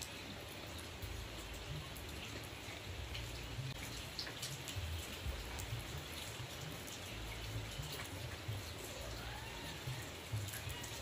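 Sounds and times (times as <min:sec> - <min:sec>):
rain falling on foliage: 0:00.0 - 0:11.0.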